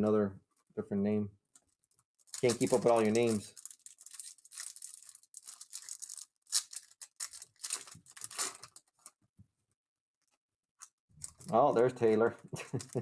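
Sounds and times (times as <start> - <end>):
foil wrapper crinkling and tearing: 2.2 - 9.1, 11.2 - 11.6, 12.6 - 13.0.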